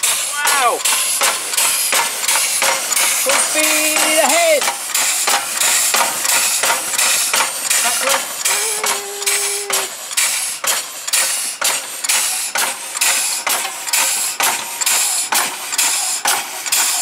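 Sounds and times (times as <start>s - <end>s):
air engine hissing puffs: 0.0s - 17.0s.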